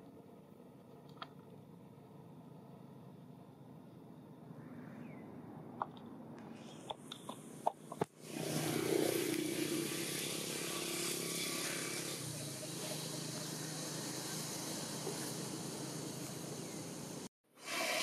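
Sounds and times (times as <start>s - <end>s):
outdoor background noise: 0.0s - 18.0s.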